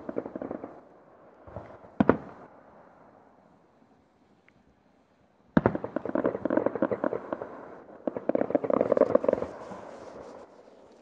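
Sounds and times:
fireworks crackling pops: 5.6 - 11.0.

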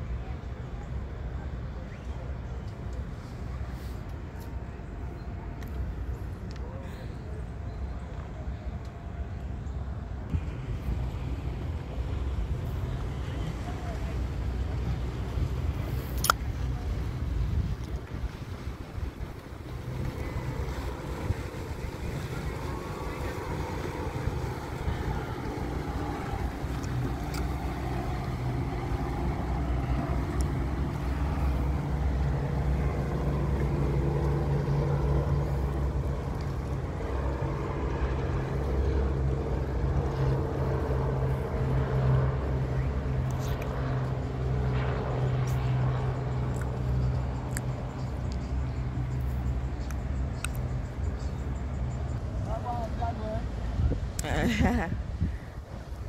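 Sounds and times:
motorboat engine running: 2.4 - 56.0.

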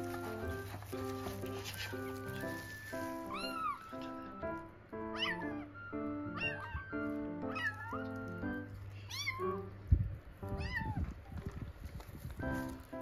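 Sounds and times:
kittens meowing: 2.1 - 9.7, 10.5 - 11.6.

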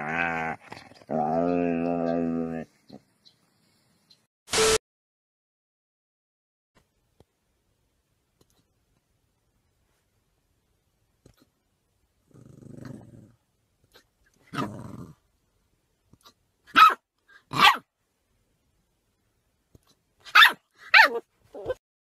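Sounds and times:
puppy growling: 0.0 - 2.7, 12.3 - 13.4, 14.5 - 15.2
puppy yapping: 16.7 - 17.8, 20.3 - 21.8.

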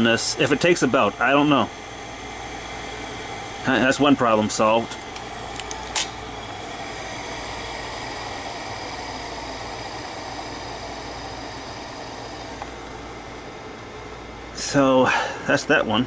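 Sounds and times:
tape head drum whirring: 0.0 - 14.7
sharp click: 4.9 - 6.2.

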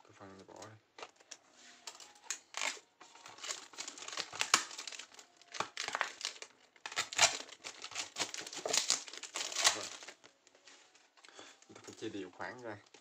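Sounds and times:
plastic bottle crinkling: 0.6 - 10.5.

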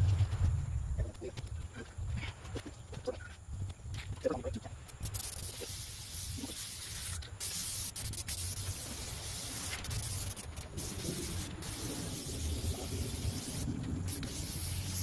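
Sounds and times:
low rumble: 0.0 - 1.2
aerosol spray can hissing: 4.9 - 15.0.

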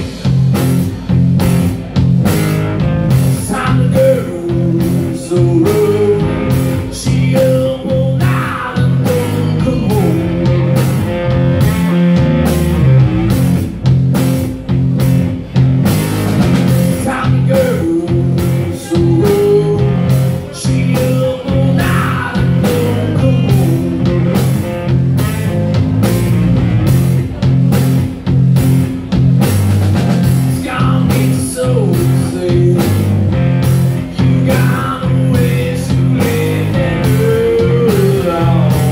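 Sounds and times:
bass guitar: 0.0 - 38.9
drum kit beat: 0.0 - 38.9
electric guitar: 0.0 - 38.9
man singing: 3.1 - 11.1, 16.7 - 24.6, 30.3 - 38.9.

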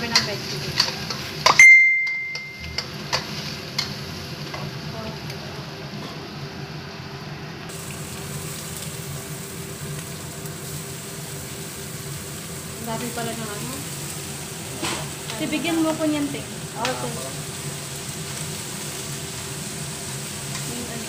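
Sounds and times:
food sizzling in a wok: 0.0 - 21.0
metallic ring: 1.5 - 2.9.

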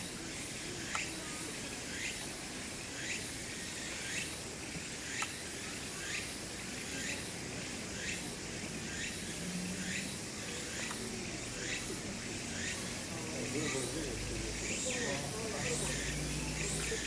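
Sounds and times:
insects buzzing: 0.0 - 17.0
rising insect chirp: 0.0 - 17.0
faint clicks: 0.8 - 1.2, 5.1 - 5.4, 10.8 - 11.1.

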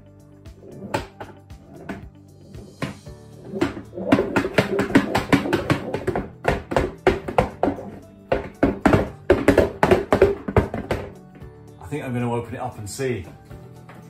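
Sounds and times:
ball knocking inside a box: 0.7 - 11.2.

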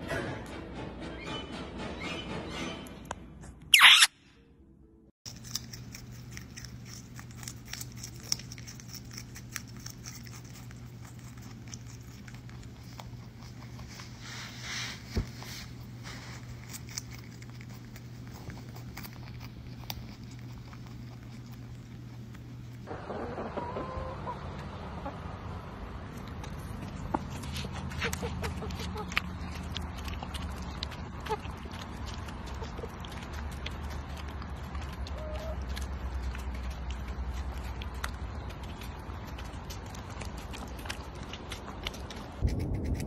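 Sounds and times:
brief high-pitched sound: 3.7 - 4.2
steady low hum: 4.6 - 43.0
rabbit crunching carrot: 5.2 - 25.2, 26.1 - 43.0.

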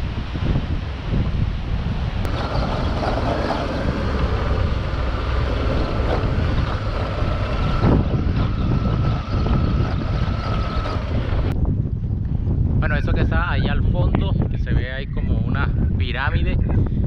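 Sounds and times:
wind buffeting microphone: 0.0 - 17.0
thin steady whine: 2.2 - 11.9
motorcycle engine running: 2.3 - 11.6.

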